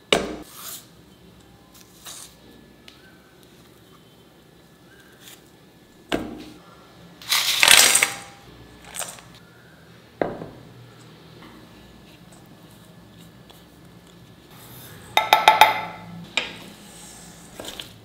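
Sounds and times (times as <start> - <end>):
metallic knocks on steel bowl: 15.2 - 16.0.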